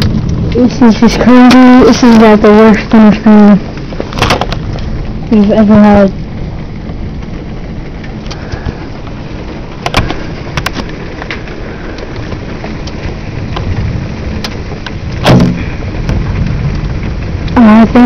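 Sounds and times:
heavy rain: 0:00.0 - 0:18.0
wind: 0:00.0 - 0:18.0
sharp cracks: 0:14.4 - 0:17.6.

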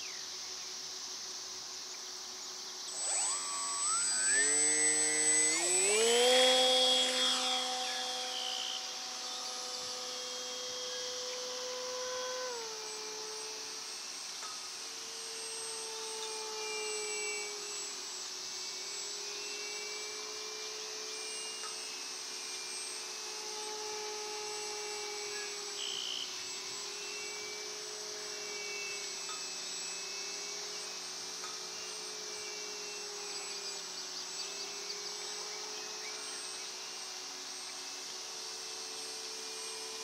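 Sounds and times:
steady high hiss: 0:00.0 - 0:20.4
model plane motor droning: 0:00.0 - 0:40.0.

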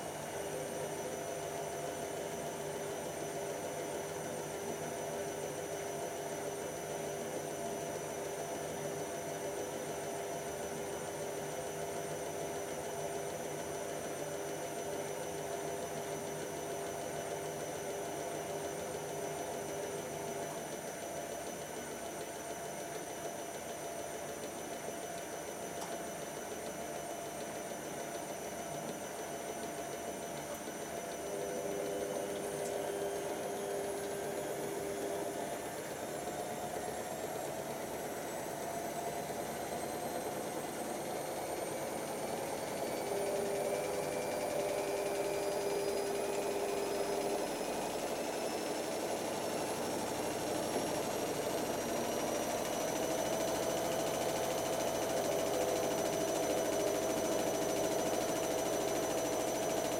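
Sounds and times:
washer dryers humming: 0:30.4 - 0:56.0.

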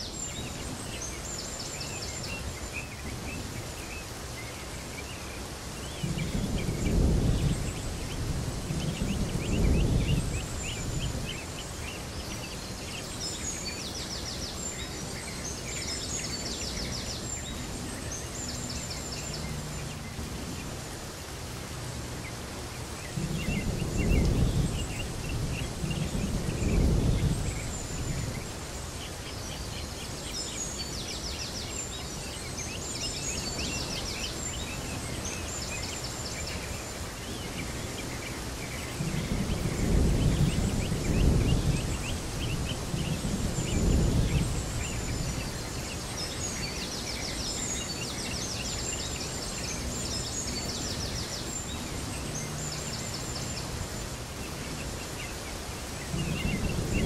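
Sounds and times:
birds chirping: 0:00.0 - 0:57.0
steady hiss: 0:00.0 - 0:57.0.

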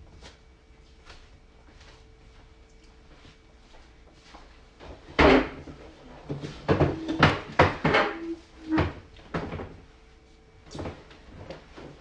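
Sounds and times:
chair knocking and bumping: 0:04.9 - 0:09.8
chair squeaks: 0:06.7 - 0:09.0.

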